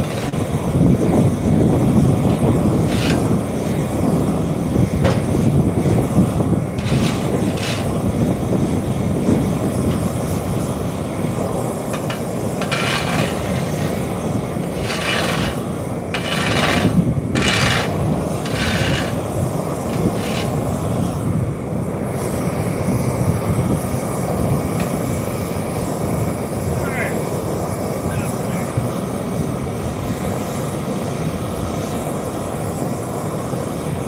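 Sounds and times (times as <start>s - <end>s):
heavy machinery rumbling: 0.0s - 21.2s.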